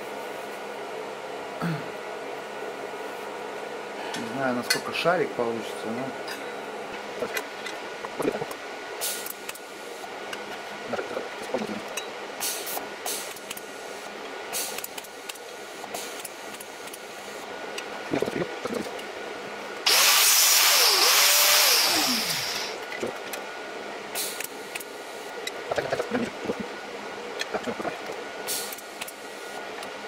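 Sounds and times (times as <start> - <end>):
welding arc hissing: 19.8 - 22.8.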